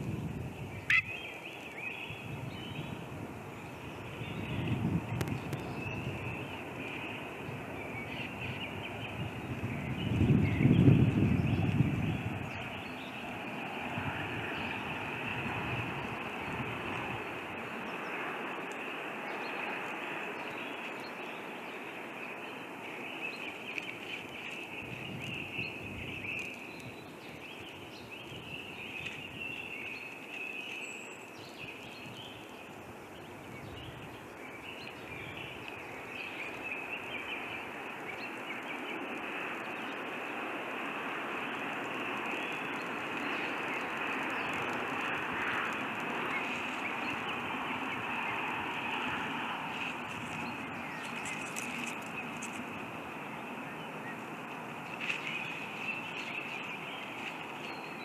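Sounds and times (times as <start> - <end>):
constant forest hiss: 0.0 - 58.0
faint bird calls: 0.8 - 2.2.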